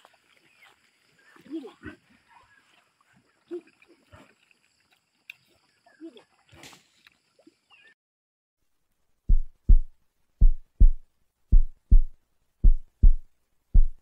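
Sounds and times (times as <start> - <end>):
heartbeat thumps: 9.3 - 14.0.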